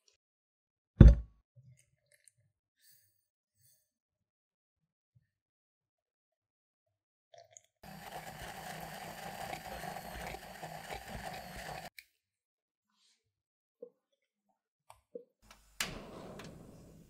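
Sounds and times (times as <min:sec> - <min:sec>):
stick blender whirring: 0:07.8 - 0:11.9.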